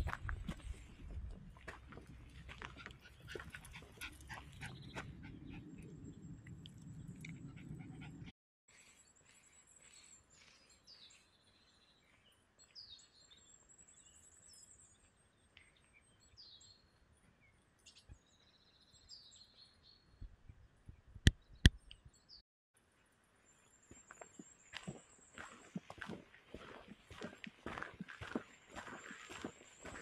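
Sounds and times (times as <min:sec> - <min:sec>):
footsteps: 0:00.0 - 0:05.1, 0:23.9 - 0:30.0
songbirds chirping and trilling: 0:00.5 - 0:22.4, 0:23.0 - 0:30.0.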